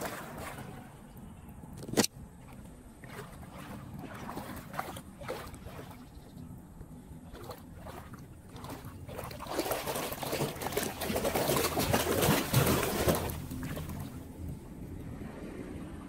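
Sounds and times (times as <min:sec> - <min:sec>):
water rushing into street drain: 0:00.0 - 0:01.0, 0:02.8 - 0:06.1, 0:07.3 - 0:14.6.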